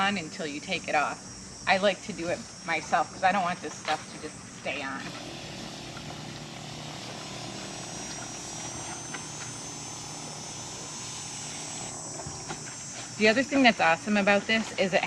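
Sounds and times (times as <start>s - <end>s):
electric pump hum: 4.1s - 15.0s
spray mist hissing: 5.1s - 14.4s.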